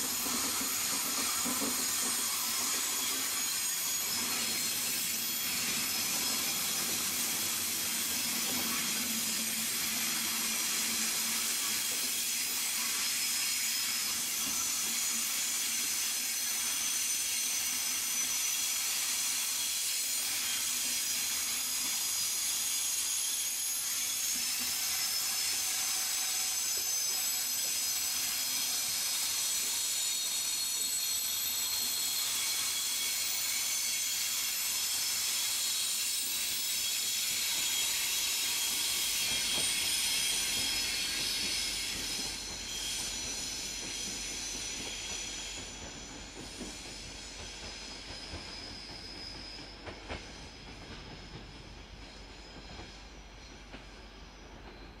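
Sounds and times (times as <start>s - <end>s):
steel wheels squealing: 0.0s - 55.0s
train coaches rolling past: 24.6s - 55.0s.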